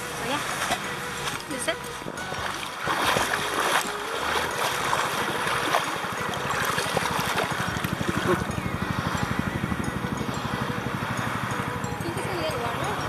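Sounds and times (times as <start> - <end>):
water splashing from swimming: 0.0 - 9.0
helicopter rotor chop: 3.3 - 13.0.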